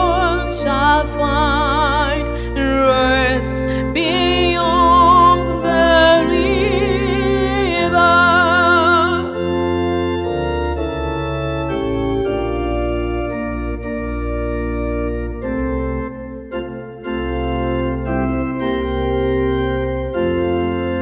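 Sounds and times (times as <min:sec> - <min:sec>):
woman singing with vibrato: 0:00.0 - 0:09.4
electronic organ chords: 0:00.0 - 0:21.0.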